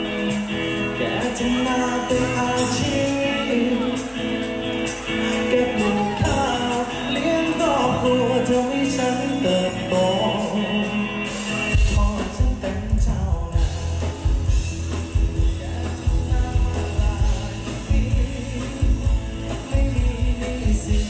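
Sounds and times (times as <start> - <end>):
drums and bass beat: 0.0 - 21.0
live band music with singing: 0.0 - 21.0.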